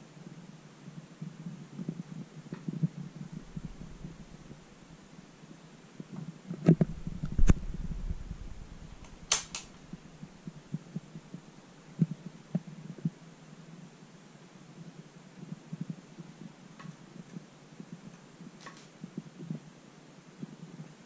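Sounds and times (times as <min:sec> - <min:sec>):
steady low hum: 0:00.0 - 0:19.7.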